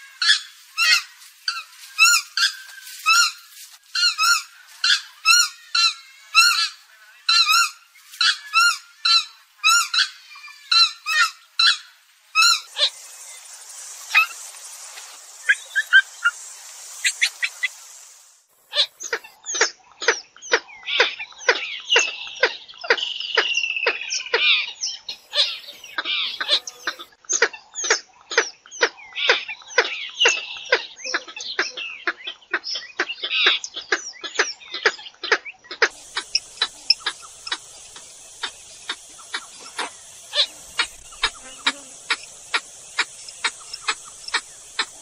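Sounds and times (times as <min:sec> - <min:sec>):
swamphen clucking and squealing: 0:04.0 - 0:19.3, 0:35.8 - 0:45.0
steady hiss with clicks: 0:10.8 - 0:19.3, 0:35.9 - 0:45.0.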